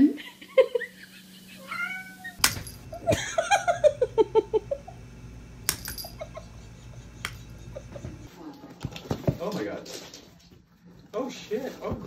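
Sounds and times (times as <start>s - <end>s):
person laughing: 0.0s - 1.9s, 2.9s - 5.0s, 6.0s - 8.3s.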